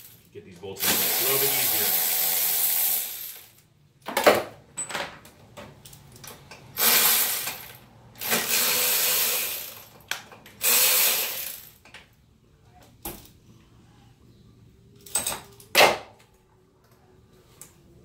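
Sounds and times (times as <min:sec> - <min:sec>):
power ratchet running: 0:00.8 - 0:03.6, 0:06.8 - 0:09.9, 0:10.6 - 0:11.7.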